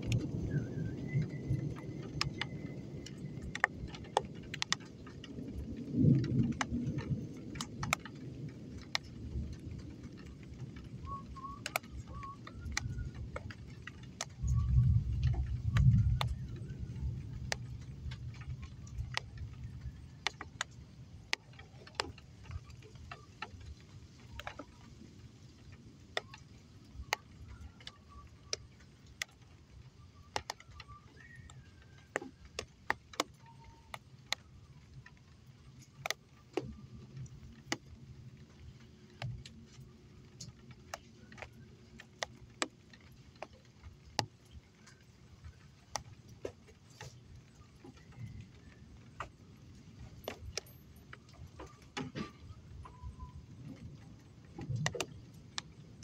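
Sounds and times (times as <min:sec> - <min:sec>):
low roll of thunder: 0:00.0 - 0:20.6
faint low rumble: 0:00.0 - 0:56.0
rain drops dripping: 0:00.0 - 0:56.0.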